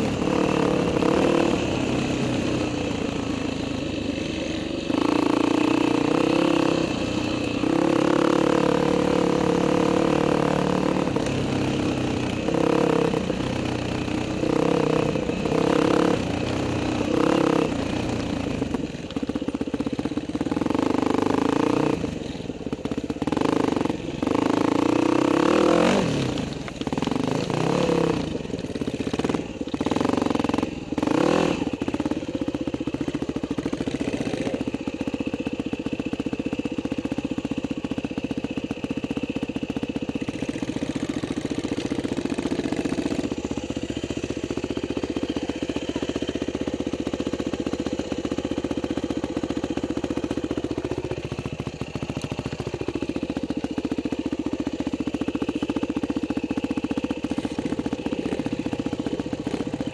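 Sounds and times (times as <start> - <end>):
dirt bike engines revving: 0.0 - 59.9.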